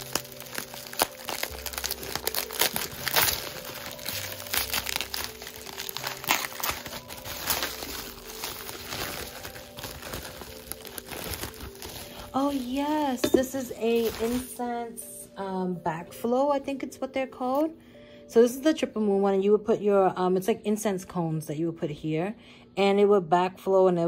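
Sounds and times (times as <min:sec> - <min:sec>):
bubble wrap crinkling: 0:00.0 - 0:15.1.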